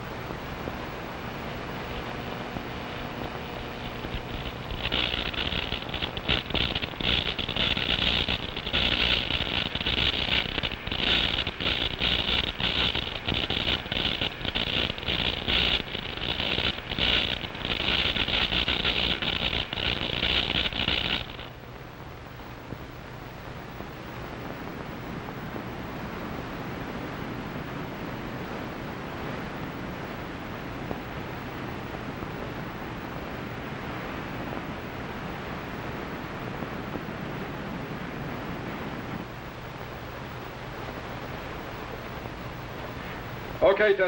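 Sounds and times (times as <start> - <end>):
surf hissing: 0.0 - 21.6
crackling electronic buzz: 0.0 - 44.0.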